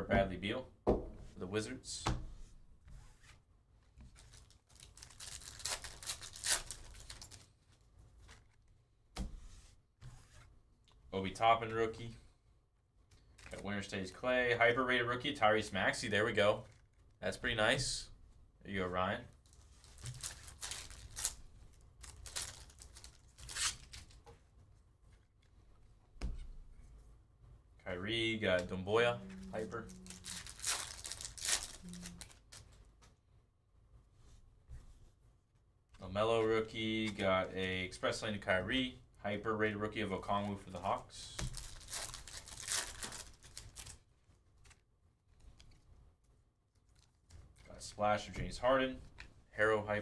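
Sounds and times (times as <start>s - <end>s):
knock: 0.8s - 1.2s
foil wrapper tearing and crinkling: 4.2s - 7.5s, 20.0s - 21.4s, 30.0s - 32.6s, 41.5s - 44.0s.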